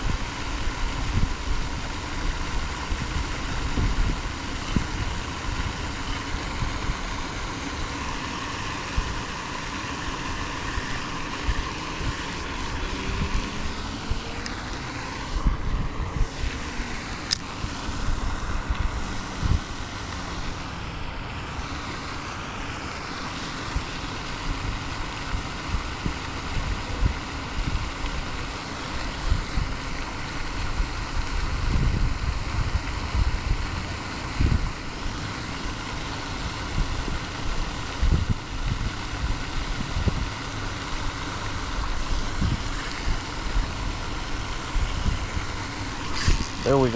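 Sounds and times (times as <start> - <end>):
wind buffeting microphone: 0.0 - 8.0, 8.7 - 20.6, 30.5 - 35.1, 36.6 - 40.8, 41.4 - 46.9
steady rushing hiss: 0.0 - 46.9.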